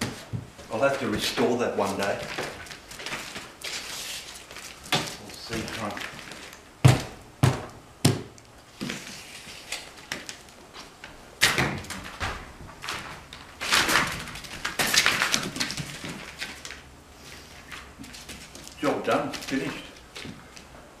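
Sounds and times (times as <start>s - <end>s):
footsteps on plastic sheet: 0.0s - 11.0s, 11.8s - 20.7s
sharp knocks: 6.8s - 8.3s.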